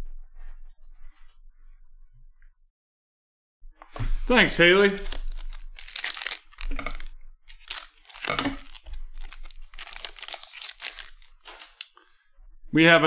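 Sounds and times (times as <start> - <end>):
wrapper tearing and crinkling: 5.0 - 11.9.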